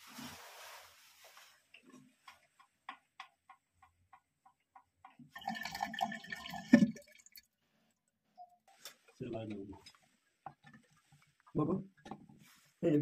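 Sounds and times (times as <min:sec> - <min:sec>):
water filling toilet cistern: 0:05.1 - 0:07.5.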